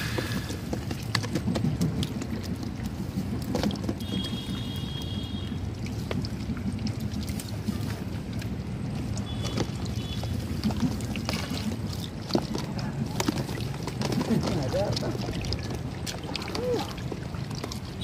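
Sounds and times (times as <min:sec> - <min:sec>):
water sloshing and splashing: 0:00.0 - 0:18.0.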